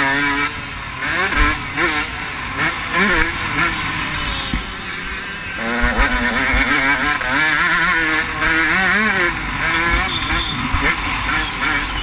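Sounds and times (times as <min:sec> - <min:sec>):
motocross bike engine revving: 0:00.0 - 0:12.0.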